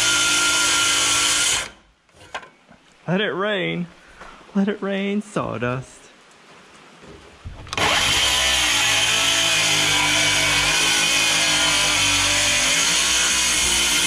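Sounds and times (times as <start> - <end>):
electric saw cutting wood: 0.0 - 1.8, 7.7 - 14.0.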